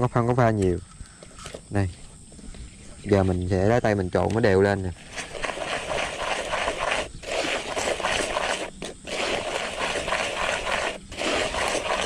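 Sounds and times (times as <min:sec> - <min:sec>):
hands rubbing powder in plastic bowl: 0:04.7 - 0:12.0.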